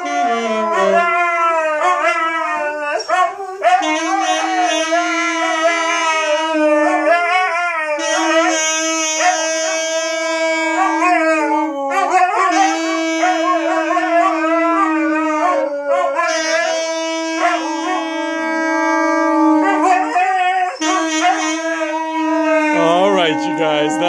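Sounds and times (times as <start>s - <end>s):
saxophone long notes: 0.0s - 1.7s, 3.8s - 7.0s, 7.9s - 11.7s, 12.4s - 15.3s, 16.2s - 19.9s, 20.8s - 24.0s
huskies howling: 0.0s - 8.3s, 17.4s - 24.0s.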